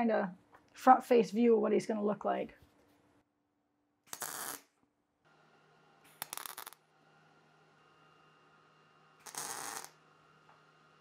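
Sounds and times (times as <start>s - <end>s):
welder tack welding: 4.1s - 4.7s, 9.2s - 10.0s.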